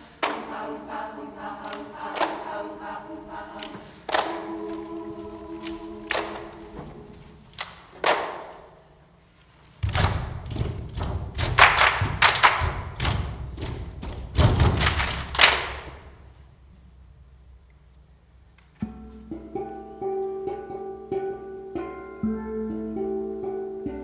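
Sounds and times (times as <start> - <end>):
thumps and slaps echoing: 9.8 - 16.2.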